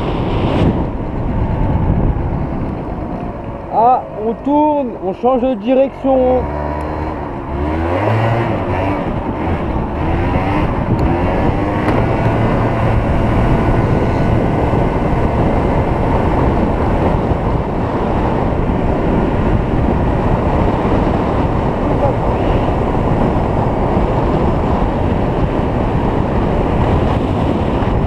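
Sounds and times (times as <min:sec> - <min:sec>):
scooter engine accelerating: 0:06.1 - 0:28.0.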